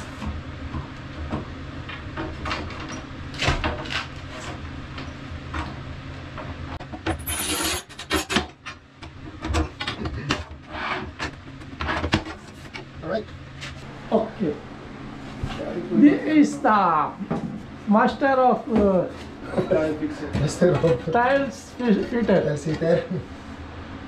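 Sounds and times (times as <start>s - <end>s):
tile cutter wheel scraping tile: 7.1s - 8.5s.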